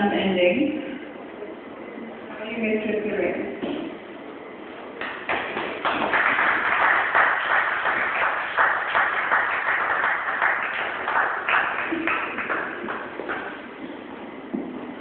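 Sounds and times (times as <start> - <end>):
people applauding: 5.0 - 13.7.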